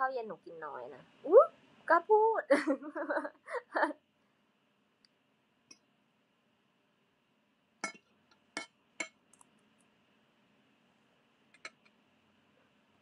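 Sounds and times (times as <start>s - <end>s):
spoon clinking against glass dish: 7.8s - 8.0s.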